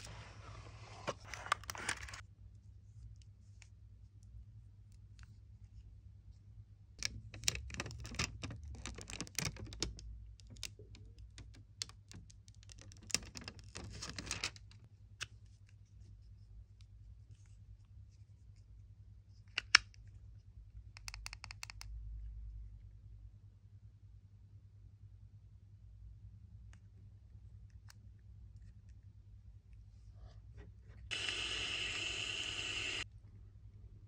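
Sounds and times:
low steady hum: 0:21.8 - 0:34.0.

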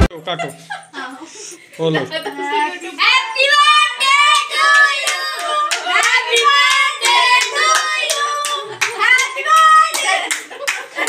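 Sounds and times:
high voices singing: 0:02.8 - 0:10.3
hand clapping in a steady beat: 0:04.3 - 0:11.0.

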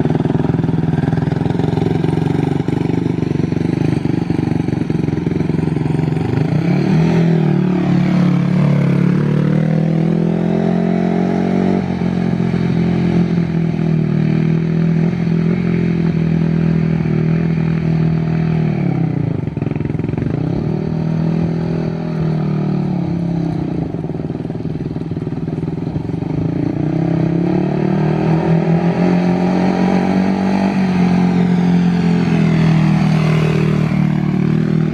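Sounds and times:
quad bike engine revving: 0:00.0 - 0:34.9.

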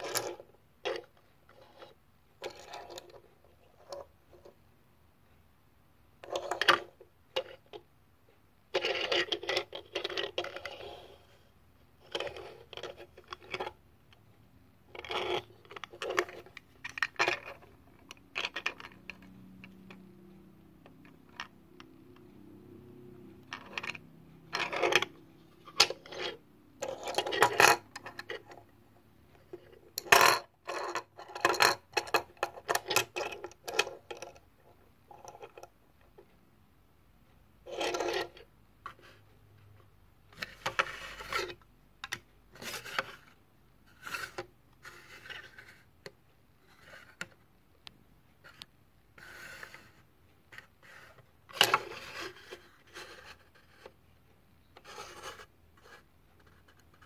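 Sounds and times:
toy cars clicking and rattling: 0:14.9 - 0:20.0, 0:23.4 - 0:28.6, 0:29.7 - 0:34.4.

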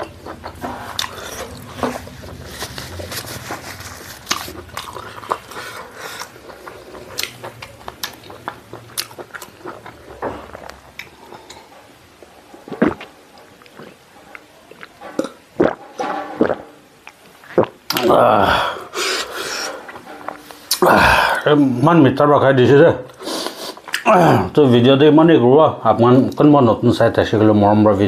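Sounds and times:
chewing and wet mouth clicks: 0:04.3 - 0:11.6.

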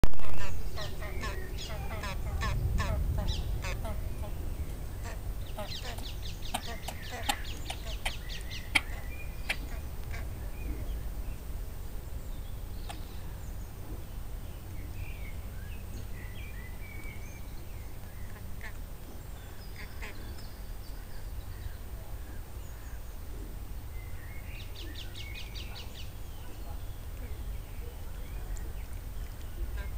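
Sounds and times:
low rumble: 0:00.1 - 0:29.9
short bird calls: 0:00.2 - 0:11.0.

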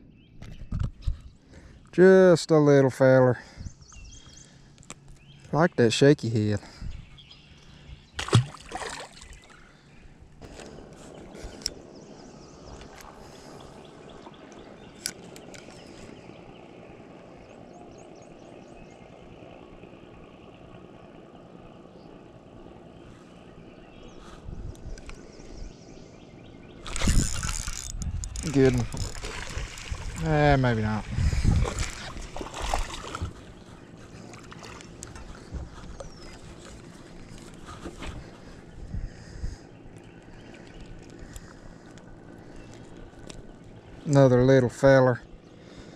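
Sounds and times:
open-air ambience on water: 0:00.0 - 0:45.9
water splashes: 0:08.2 - 0:09.8, 0:28.4 - 0:33.6, 0:34.2 - 0:35.1.

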